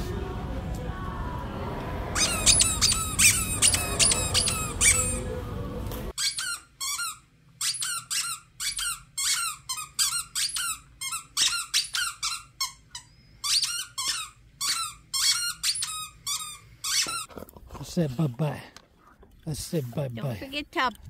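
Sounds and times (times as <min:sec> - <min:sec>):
dog chewing toy: 0:02.2 - 0:05.2
squeaky toy squeaking: 0:02.2 - 0:05.3, 0:06.1 - 0:17.3.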